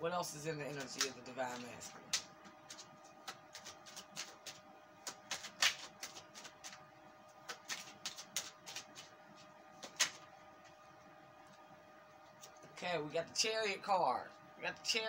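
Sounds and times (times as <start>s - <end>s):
faint steady hum: 0.0s - 15.0s
cards shuffling: 0.7s - 6.8s, 7.4s - 10.3s.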